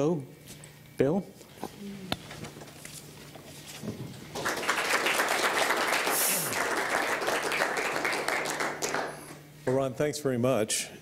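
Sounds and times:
audience applauding: 0:04.3 - 0:09.4.

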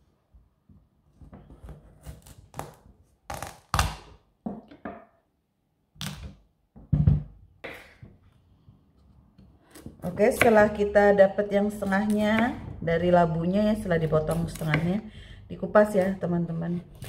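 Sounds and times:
knife cutting squash on wooden board: 0:01.4 - 0:04.1, 0:14.1 - 0:15.1, 0:15.8 - 0:17.0.

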